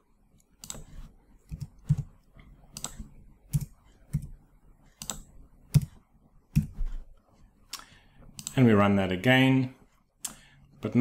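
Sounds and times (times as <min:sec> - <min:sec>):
computer keyboard keystrokes: 0:00.6 - 0:00.9, 0:02.7 - 0:04.3, 0:05.0 - 0:06.8, 0:08.4 - 0:08.6.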